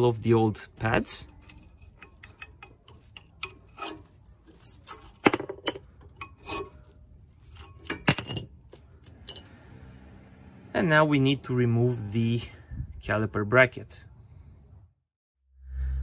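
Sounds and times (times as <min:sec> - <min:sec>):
metallic clicks and clinks: 0:01.2 - 0:09.6.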